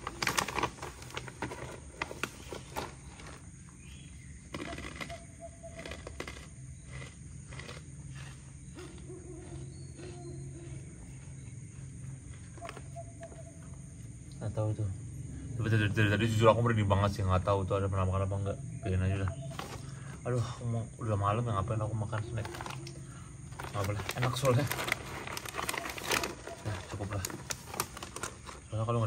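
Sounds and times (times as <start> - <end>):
plastic packet crinkling: 0.0 - 3.5, 22.4 - 28.7.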